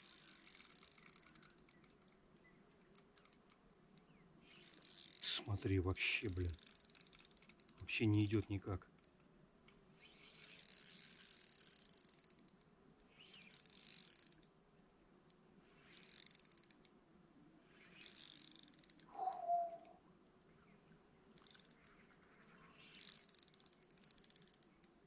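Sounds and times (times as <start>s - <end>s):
fishing reel clicking: 0.0s - 9.2s, 10.1s - 14.5s, 15.3s - 16.9s, 17.8s - 19.4s, 21.3s - 22.0s, 22.8s - 24.9s
faint chirps: 19.1s - 24.2s.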